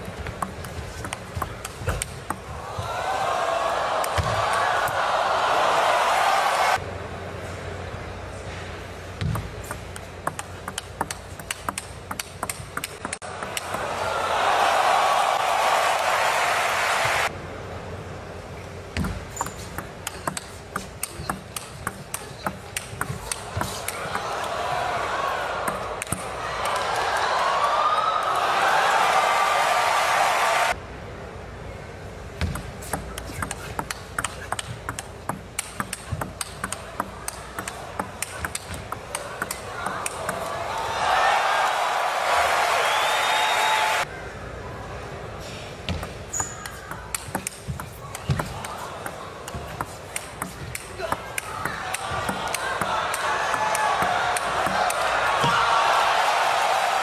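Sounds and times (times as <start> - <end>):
arena crowd noise: 0.0 - 57.0
table tennis ball ticking: 0.1 - 2.5, 9.4 - 13.8, 19.0 - 24.5, 25.6 - 26.8, 32.4 - 40.5, 45.9 - 55.1.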